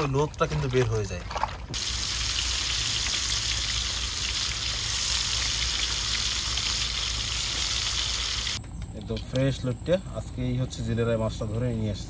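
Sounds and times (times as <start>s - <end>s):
fish sizzling in hot oil: 1.8s - 8.6s.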